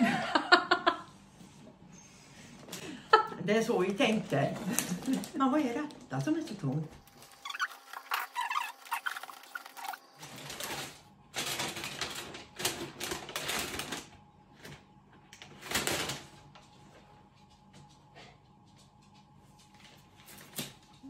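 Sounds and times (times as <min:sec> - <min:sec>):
wrapping paper crinkling and tearing: 0:03.9 - 0:06.1, 0:07.0 - 0:14.8, 0:15.4 - 0:16.7.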